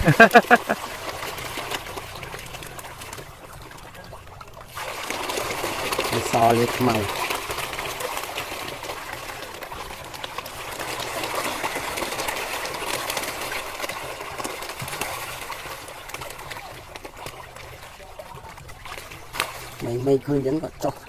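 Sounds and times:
fish splashing at water surface: 0:00.0 - 0:21.0.

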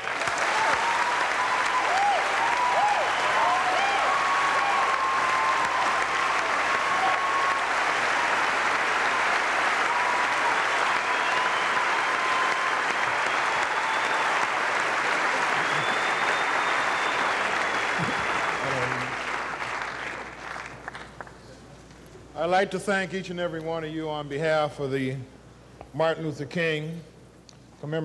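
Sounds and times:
audience applauding: 0:00.0 - 0:21.4.

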